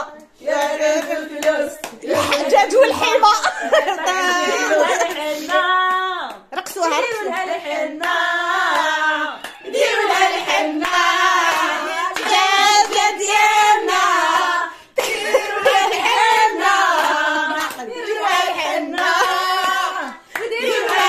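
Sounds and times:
hand clapping: 0.0s - 2.9s, 4.8s - 7.1s, 8.0s - 13.4s, 15.0s - 21.0s
voices singing together: 0.0s - 21.0s.

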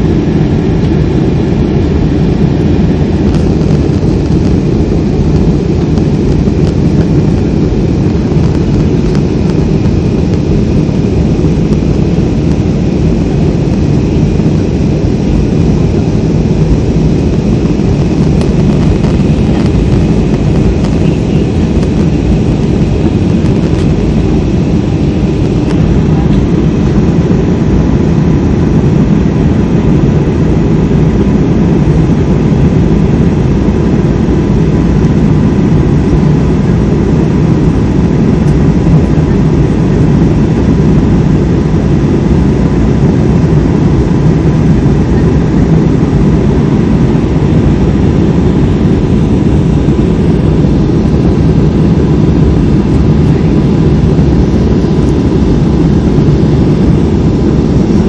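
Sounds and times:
faint steady whine: 0.0s - 58.0s
jet engines and airflow drone: 0.0s - 58.0s.

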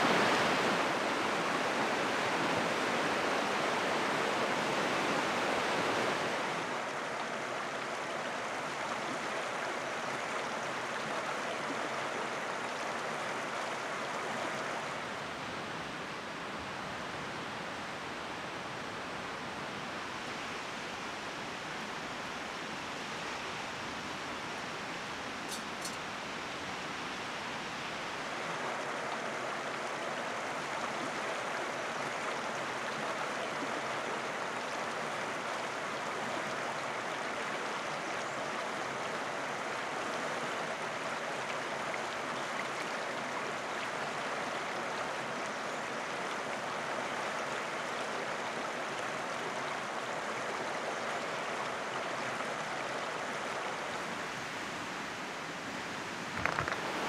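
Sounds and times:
river rapids rushing: 0.0s - 8.8s, 38.9s - 57.0s.

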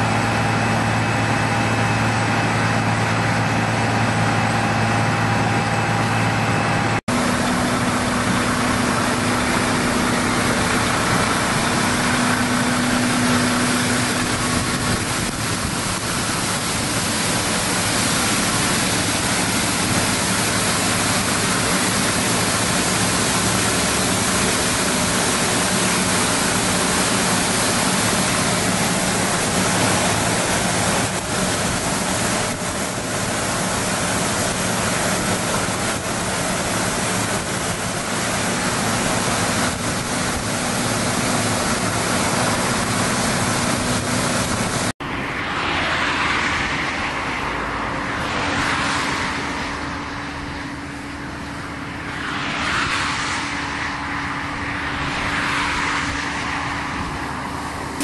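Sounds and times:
low engine hum: 0.0s - 58.0s
sweeper fan and brush rushing: 0.0s - 58.0s.

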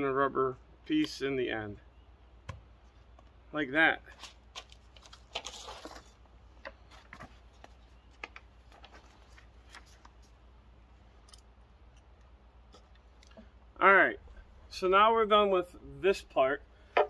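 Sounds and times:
paper rustling: 4.1s - 10.4s.

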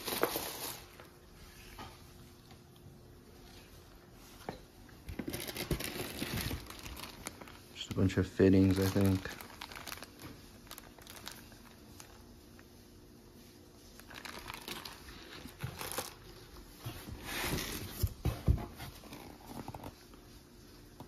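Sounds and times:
cardboard packaging shifting: 0.0s - 1.1s, 5.0s - 12.3s, 14.0s - 20.0s
plastic bags crinkling: 0.0s - 1.2s, 5.0s - 12.7s, 13.8s - 16.8s.

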